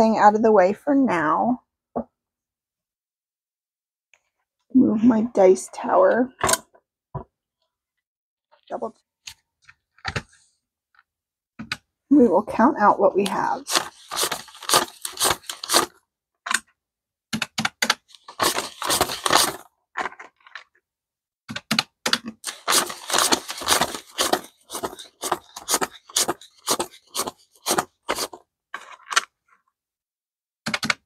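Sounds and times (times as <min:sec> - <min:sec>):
banknotes rustling being counted: 0:13.3 - 0:15.9, 0:17.8 - 0:19.7, 0:22.4 - 0:28.4.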